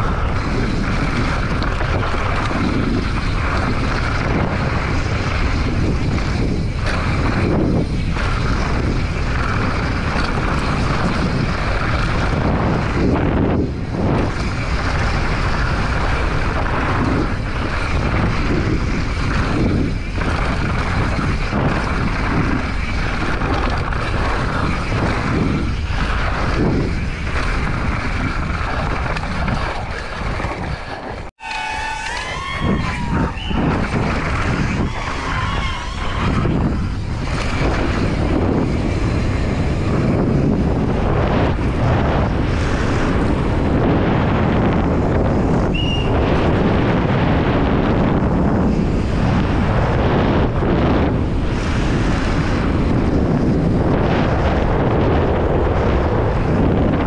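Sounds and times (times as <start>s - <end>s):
bike tyres rattling over dirt: 0.0s - 57.0s
wind on camera microphone: 0.0s - 57.0s
wavering high calls: 31.4s - 33.6s.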